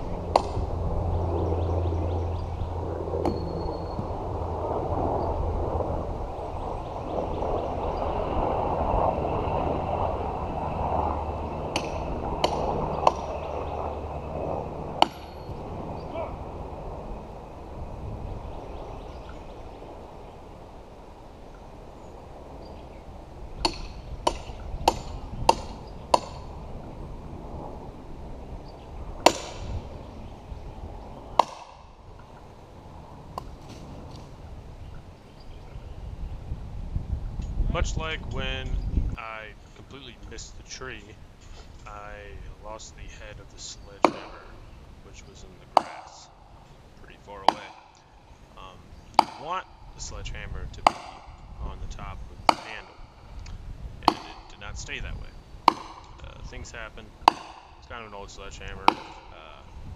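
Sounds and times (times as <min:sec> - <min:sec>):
wind rumble: 0:00.0 - 0:59.9
sledgehammer striking metal wedge: 0:44.0 - 0:44.4, 0:45.8 - 0:46.2, 0:52.5 - 0:52.9, 0:54.1 - 0:54.4, 0:55.7 - 0:56.1, 0:57.3 - 0:57.7, 0:58.9 - 0:59.2.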